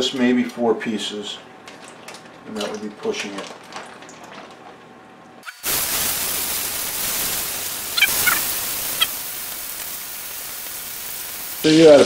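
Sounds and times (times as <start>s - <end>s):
chicken sizzling in skillet: 5.5s - 12.0s
high squeaks: 8.0s - 9.1s.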